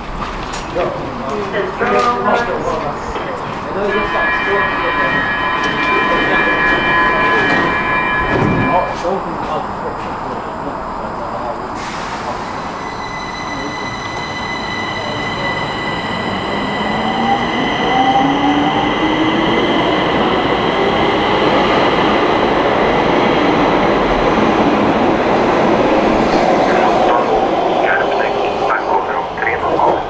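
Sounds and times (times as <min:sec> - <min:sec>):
train rumble: 0:00.0 - 0:30.0
constant high tones: 0:01.8 - 0:11.5, 0:12.4 - 0:24.4.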